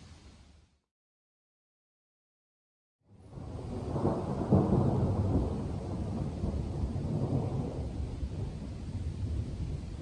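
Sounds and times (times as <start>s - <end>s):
rolling thunder: 3.1s - 10.0s.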